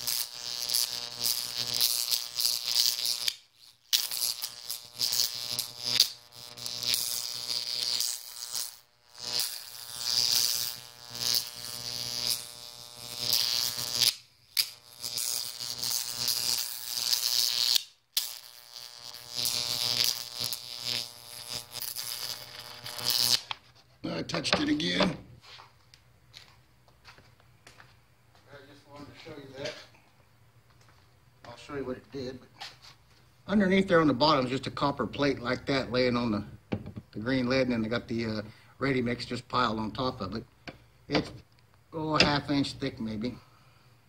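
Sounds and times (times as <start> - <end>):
electric arc buzzing crackle: 0.0 - 23.6, 24.2 - 25.2, 33.4 - 36.5, 37.1 - 43.4.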